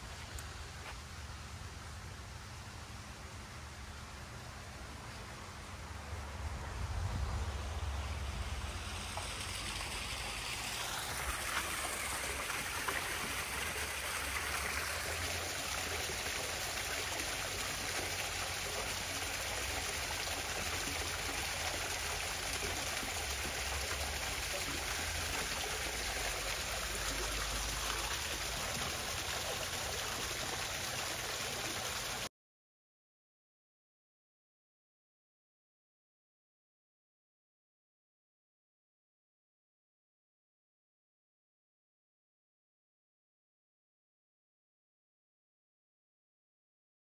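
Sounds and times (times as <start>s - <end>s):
running water rushing: 7.2s - 32.3s.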